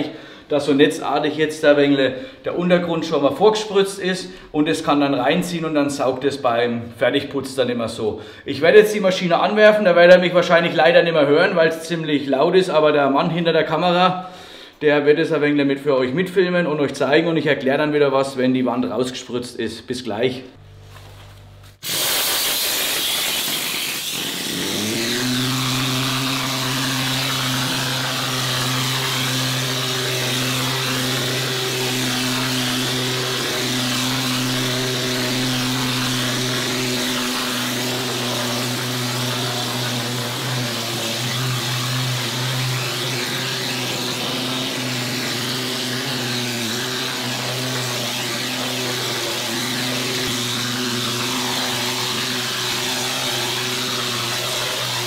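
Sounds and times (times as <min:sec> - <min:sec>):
hiss of plaster spray: 0:21.8 - 0:55.0
motor hum: 0:23.2 - 0:55.0.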